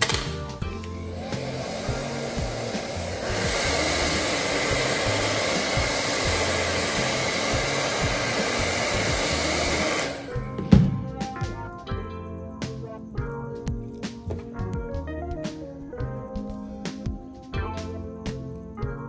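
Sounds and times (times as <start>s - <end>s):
hot-air blower rushing air: 0.0s - 10.5s.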